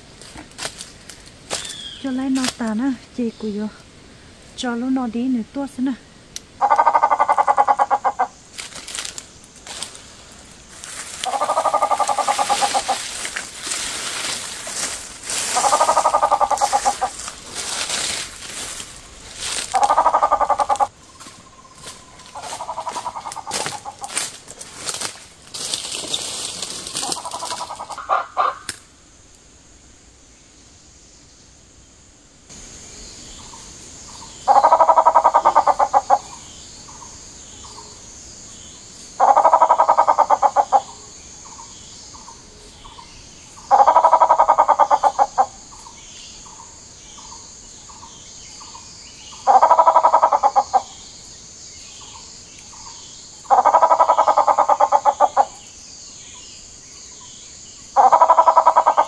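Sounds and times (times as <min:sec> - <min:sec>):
high insect buzz: 0:00.0 - 0:59.0
pheasant harsh pulsed calls: 0:06.6 - 0:08.5, 0:10.9 - 0:24.2, 0:26.1 - 0:28.8, 0:33.4 - 0:37.9, 0:39.2 - 0:51.0, 0:52.0 - 0:55.6, 0:58.0 - 0:59.0.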